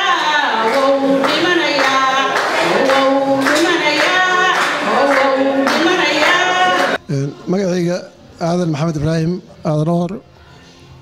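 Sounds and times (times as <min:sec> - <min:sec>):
rhythmic hand clapping: 0:00.0 - 0:07.0
woman singing into a microphone: 0:00.0 - 0:07.0.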